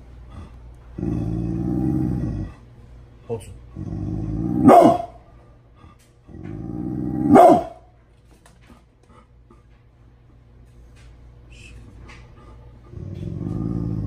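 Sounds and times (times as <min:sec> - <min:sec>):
dog growling low: 0:00.2 - 0:02.7, 0:03.6 - 0:04.7, 0:06.2 - 0:07.4, 0:12.4 - 0:14.0
dog barking: 0:04.6 - 0:05.2, 0:07.2 - 0:07.9.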